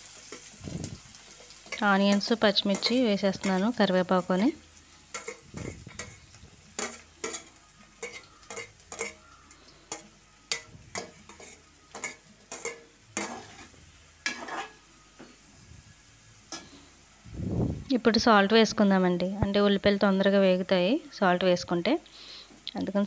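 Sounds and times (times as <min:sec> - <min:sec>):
utensils clicking on metal pan: 0:00.0 - 0:14.8
oil sizzling faintly: 0:00.0 - 0:23.0.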